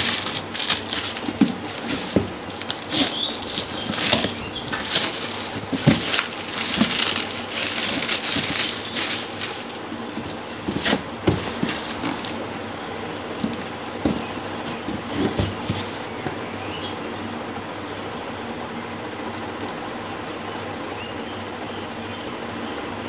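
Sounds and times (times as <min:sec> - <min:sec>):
plastic bag crinkling: 0:00.0 - 0:12.4
cardboard box bumps: 0:00.0 - 0:12.5, 0:13.4 - 0:16.4.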